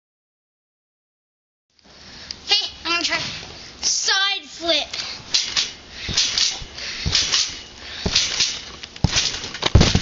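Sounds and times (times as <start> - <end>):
thuds on trampoline mat: 5.4 - 10.0.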